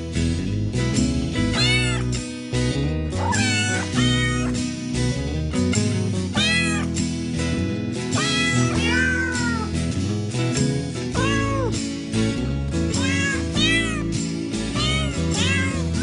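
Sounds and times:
music backing track: 0.0 - 16.0
cat meows tune: 1.5 - 2.2, 3.2 - 4.6, 6.3 - 7.0, 8.2 - 9.8, 11.1 - 11.8, 12.9 - 16.0.

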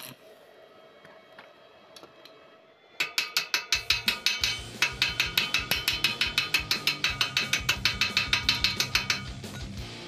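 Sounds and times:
chipping hammer tapping on metal: 3.0 - 9.8.

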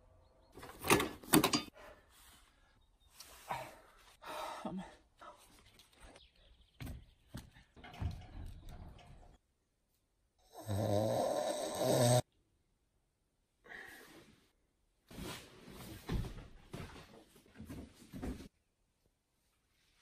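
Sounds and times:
man snoring: 10.5 - 12.3.

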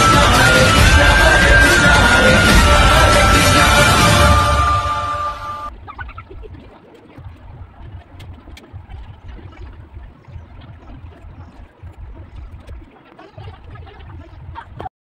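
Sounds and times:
music track: 0.0 - 5.8.

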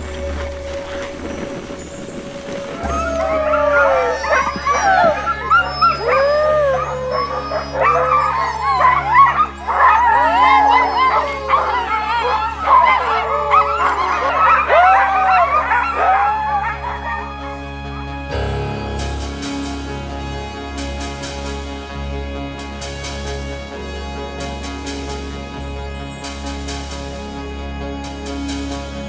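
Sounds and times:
dogs howling and yipping: 2.5 - 18.2.

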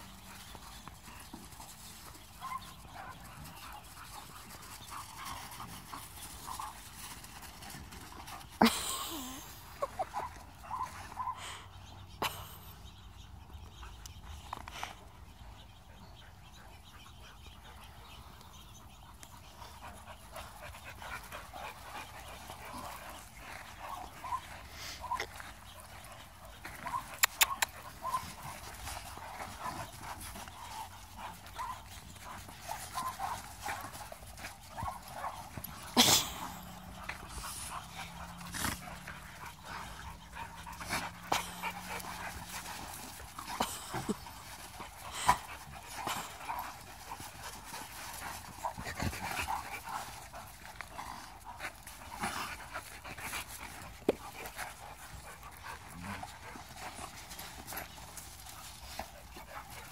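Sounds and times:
dogs panting: 0.0 - 59.9
dogs whining and yipping: 29.7 - 34.0.

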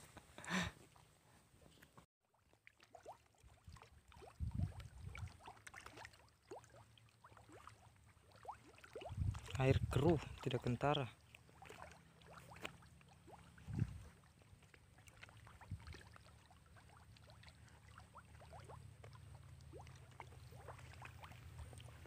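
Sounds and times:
low steady microphone rumble: 13.6 - 14.1.

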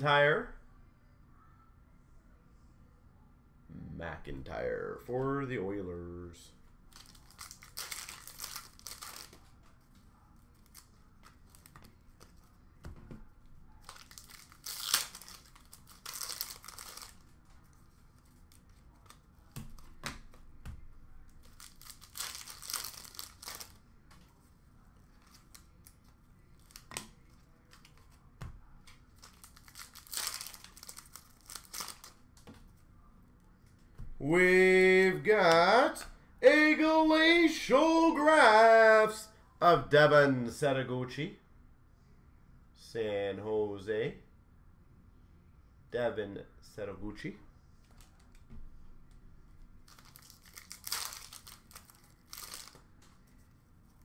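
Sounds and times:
card wrappers tearing and crinkling: 6.9 - 9.6, 10.6 - 12.6, 13.8 - 20.0, 21.3 - 23.8, 25.2 - 28.2, 28.9 - 32.2, 49.9 - 54.0.

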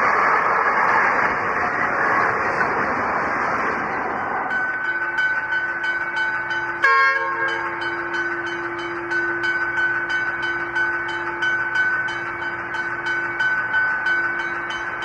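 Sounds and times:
steady ringing bell: 4.5 - 15.0
locomotive horn blast: 6.8 - 7.8.

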